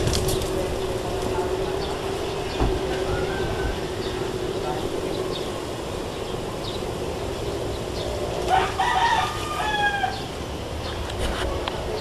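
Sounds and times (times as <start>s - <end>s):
outdoor background noise: 0.0s - 12.0s
rooster crowing: 3.0s - 4.3s, 8.4s - 10.4s.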